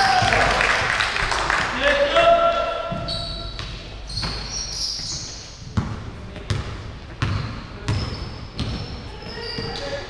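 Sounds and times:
basketball bouncing on hall floor: 0:00.0 - 0:01.4, 0:02.8 - 0:10.0
shoe squeak: 0:02.9 - 0:05.7, 0:07.2 - 0:10.0.

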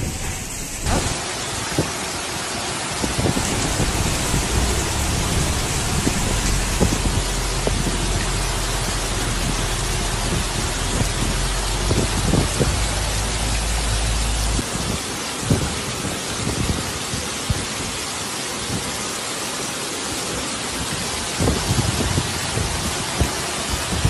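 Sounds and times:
heavy rain pouring: 0:00.0 - 0:24.0
low steady rumble: 0:03.3 - 0:14.7.

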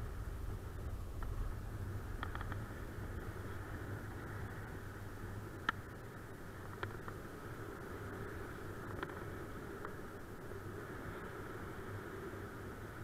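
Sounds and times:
wind rushing over microphone: 0:00.0 - 0:13.0
faint clicks: 0:02.2 - 0:02.8, 0:05.6 - 0:05.9, 0:06.6 - 0:07.2, 0:08.8 - 0:10.0.

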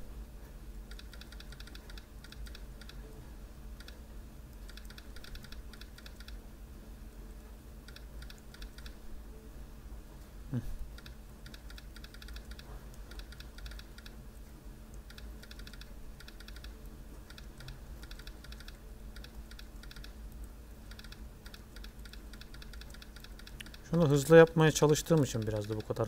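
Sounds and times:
laptop keyboard typing: 0:00.9 - 0:03.1, 0:03.8 - 0:04.0, 0:04.6 - 0:06.4, 0:07.8 - 0:09.0, 0:11.0 - 0:14.2, 0:14.9 - 0:26.0.

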